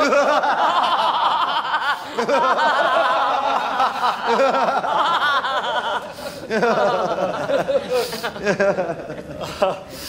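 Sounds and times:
group of people laughing: 0:00.0 - 0:10.0.

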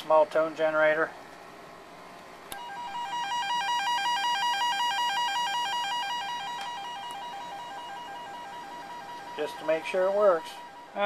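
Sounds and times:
warbling test tone: 0:02.6 - 0:11.0.

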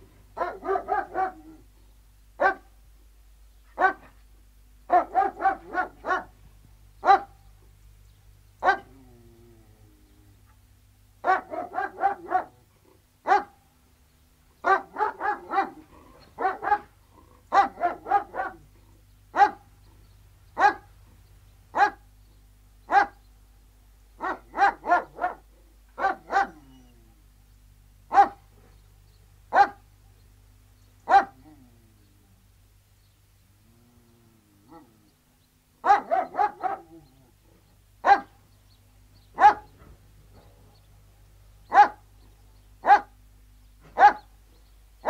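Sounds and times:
dogs barking: 0:00.4 - 0:01.6, 0:02.4 - 0:02.7, 0:03.8 - 0:04.1, 0:04.9 - 0:06.4, 0:07.0 - 0:07.4, 0:08.6 - 0:09.0, 0:11.2 - 0:12.6, 0:13.2 - 0:13.6, 0:14.6 - 0:18.7, 0:19.3 - 0:19.7, 0:20.6 - 0:20.9, 0:21.7 - 0:22.0, 0:22.9 - 0:23.2, 0:24.2 - 0:26.9, 0:28.1 - 0:28.7, 0:29.5 - 0:29.9, 0:31.0 - 0:31.6, 0:35.8 - 0:37.2, 0:38.0 - 0:38.4, 0:39.3 - 0:40.8, 0:41.7 - 0:42.1, 0:42.8 - 0:43.2, 0:43.8 - 0:44.3.

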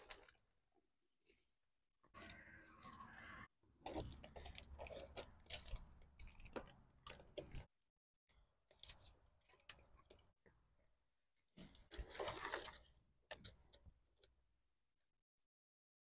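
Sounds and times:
crunching scrapes: 0:11.6 - 0:13.7.

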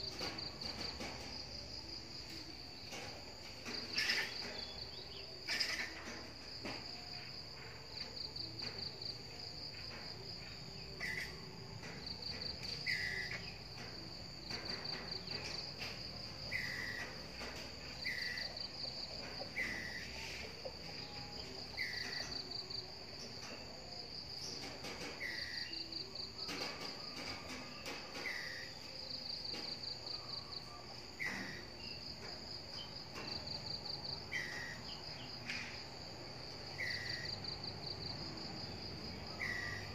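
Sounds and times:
insects trilling: 0:00.0 - 0:39.9
squirrel alarm call: 0:39.4 - 0:39.9.

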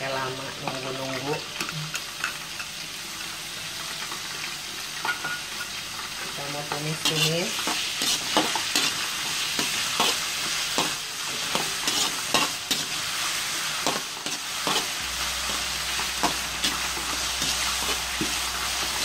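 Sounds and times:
garlic sizzling in hot oil: 0:00.0 - 0:19.0
metal spatula scraping a wok: 0:06.9 - 0:19.0.

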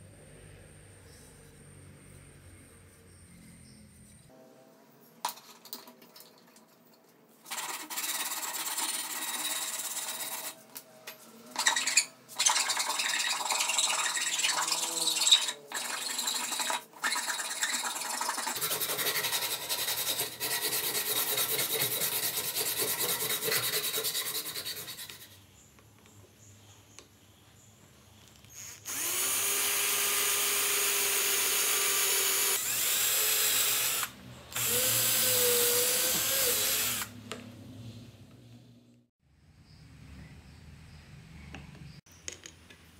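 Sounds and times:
rasp scraping wood: 0:11.7 - 0:25.4.

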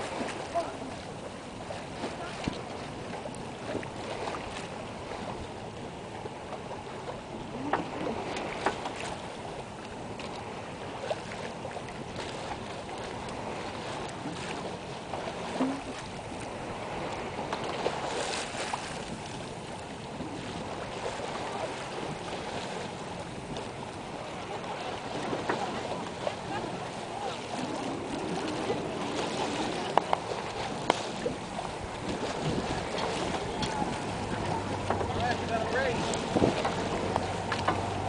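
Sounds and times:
rushing water: 0:00.0 - 0:38.0
wind: 0:00.0 - 0:38.0
light knocks and clicks: 0:36.4 - 0:37.9.

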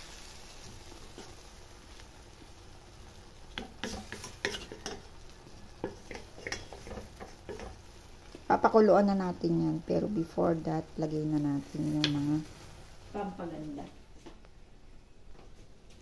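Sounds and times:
faint sizzle: 0:00.0 - 0:16.0
wooden spatula scraping a pot: 0:03.6 - 0:07.9.

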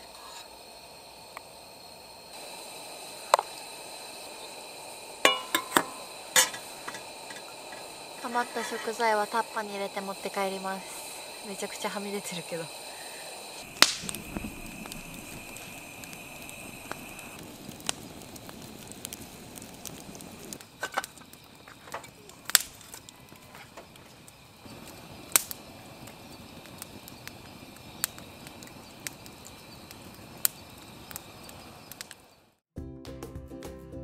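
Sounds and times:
thin steady high tone: 0:00.0 - 0:17.4
campfire crackling: 0:00.0 - 0:32.6
fire snaps and pops: 0:00.1 - 0:32.6.

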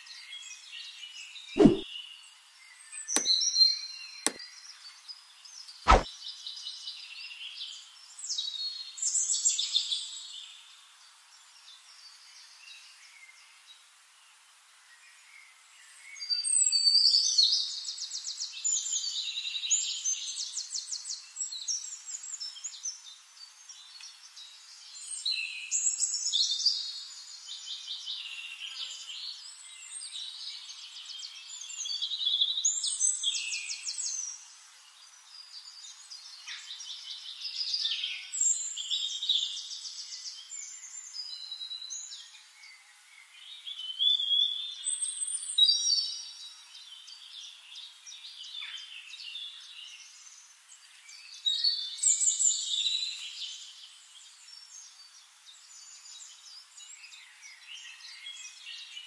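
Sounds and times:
mouse click: 0:01.6 - 0:01.8, 0:05.9 - 0:06.1.

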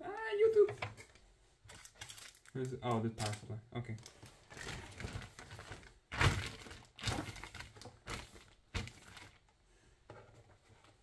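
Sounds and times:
plastic bag crinkling: 0:01.7 - 0:09.5.

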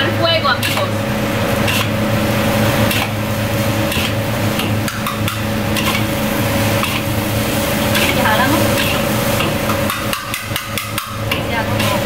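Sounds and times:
steady hum: 0:00.0 - 0:12.0
metal ladle scraping a wok: 0:01.6 - 0:02.0, 0:03.8 - 0:12.0.

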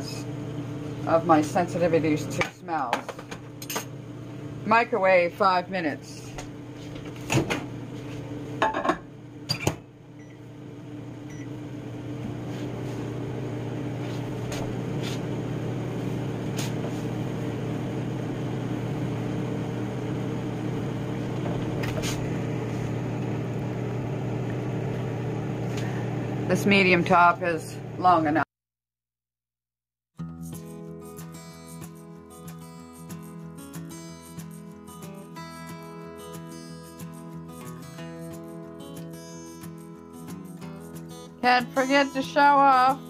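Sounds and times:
microwave oven humming: 0:00.0 - 0:28.4.

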